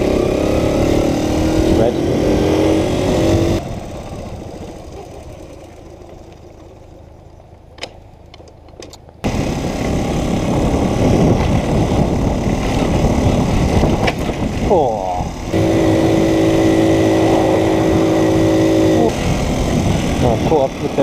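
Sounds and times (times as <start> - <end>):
wind noise: 0.0 - 3.8, 9.2 - 21.0
moped engine running: 0.0 - 8.3, 9.2 - 21.0.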